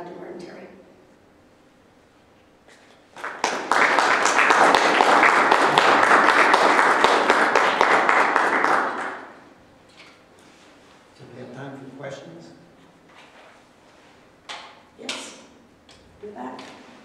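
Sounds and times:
audience applauding: 3.1s - 9.5s.

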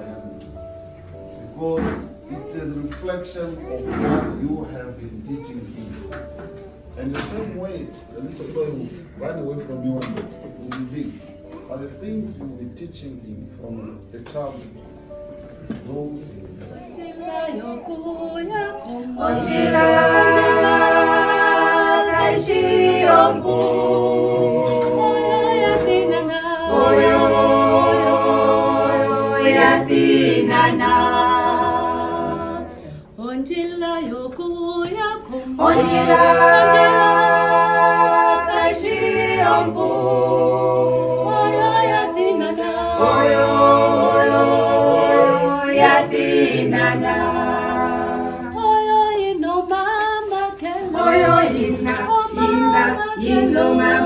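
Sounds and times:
a cappella group singing: 16.8s - 54.0s.

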